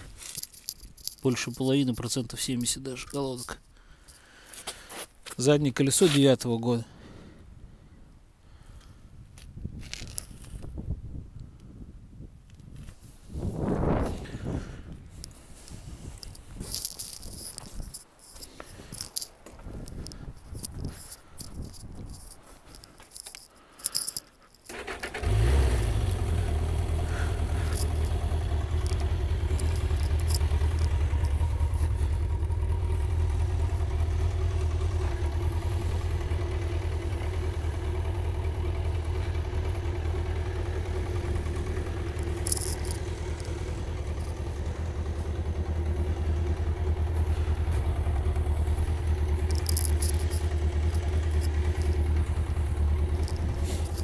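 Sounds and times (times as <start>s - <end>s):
motorcycle engine starting and idling: 24.6s - 54.0s.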